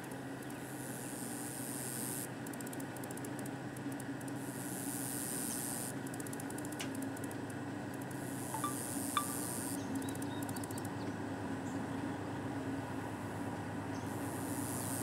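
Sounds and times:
insects hissing: 0.6 - 2.3, 4.4 - 6.8, 8.1 - 10.8, 14.0 - 15.0
diesel locomotive low hum: 6.0 - 15.0.

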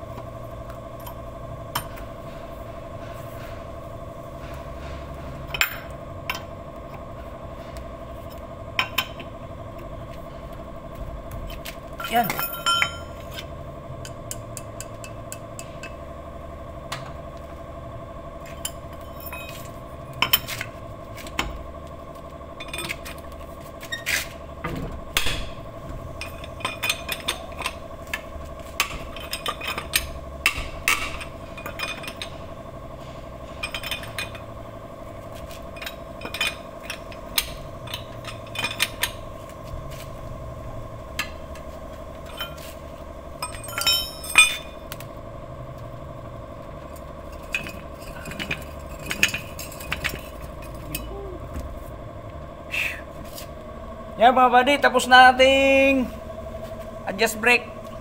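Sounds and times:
steady background hum: 0.0 - 58.0
steel hand tools clinking: 43.4 - 44.7.

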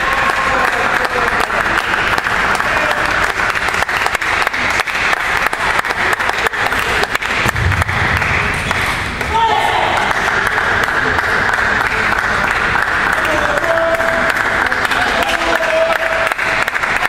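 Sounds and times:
crowd applauding: 0.0 - 17.0
low rumble: 7.4 - 9.3.

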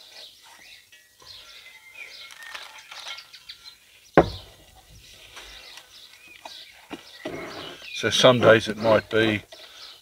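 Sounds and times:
birds chirping and calling: 0.0 - 10.0
sharp knock: 4.2 - 4.5.

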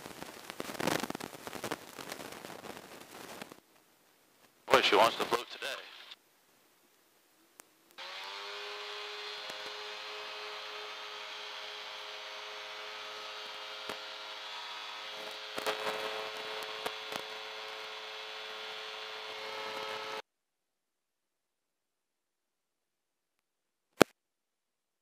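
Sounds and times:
light aircraft engine: 8.0 - 20.2.

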